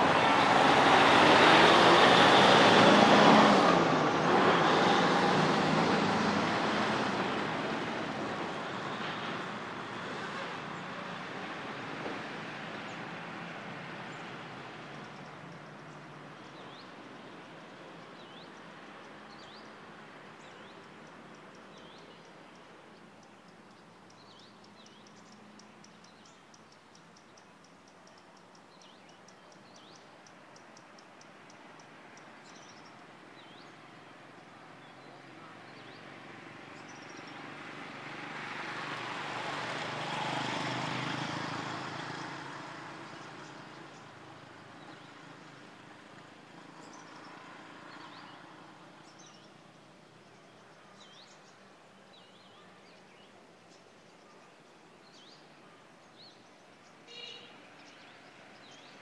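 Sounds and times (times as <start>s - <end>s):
vehicle passing: 0.0s - 16.8s, 33.4s - 50.0s
birds chirping: 46.8s - 59.0s.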